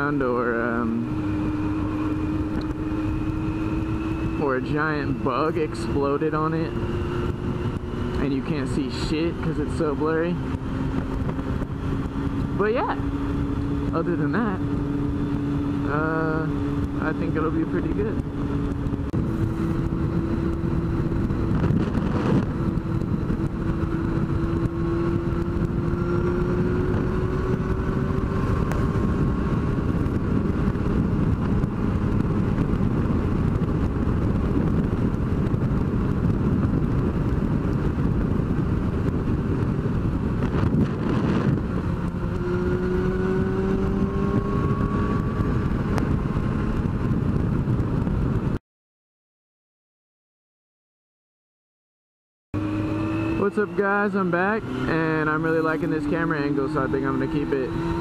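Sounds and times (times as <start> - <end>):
motorcycle engine at speed: 0.0 - 48.6, 52.6 - 58.0
wind rush: 0.0 - 48.6, 52.6 - 58.0.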